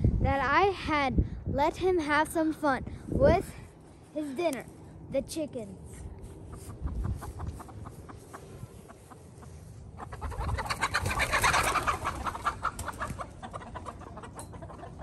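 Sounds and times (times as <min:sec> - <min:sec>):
chickens clucking: 0:06.3 - 0:15.0
chickens alarm cackling: 0:06.4 - 0:15.0.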